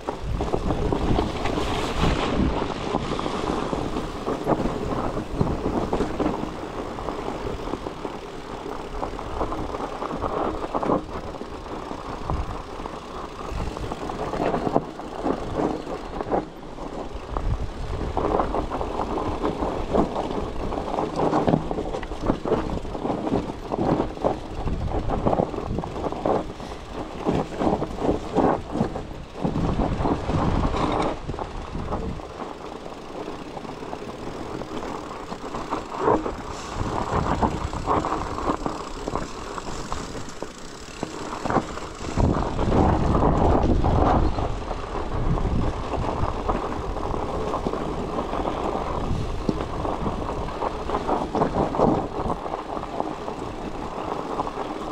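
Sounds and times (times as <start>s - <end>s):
bicycle rattling: 0.0s - 54.9s
tyres rumbling on trail: 0.0s - 54.9s.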